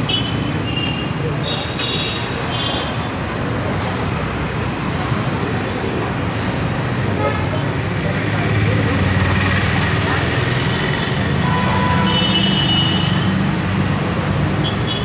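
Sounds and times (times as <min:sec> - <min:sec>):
vehicle engines rumbling: 0:00.0 - 0:15.0
car horn: 0:11.3 - 0:13.3.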